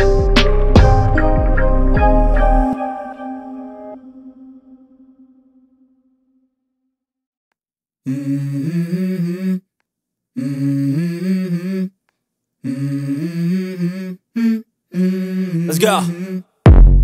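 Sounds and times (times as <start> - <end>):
hummed vocal melody: 8.1 - 9.7, 10.4 - 12.0, 12.6 - 16.6.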